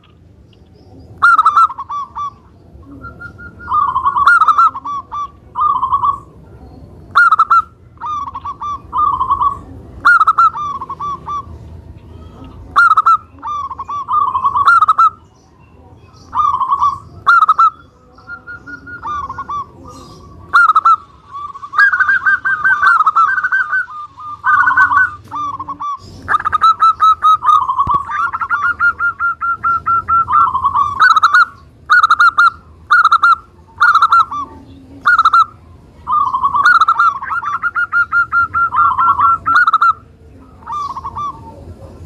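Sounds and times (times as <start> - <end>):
dove trilled cooing song: 0.0 - 42.0.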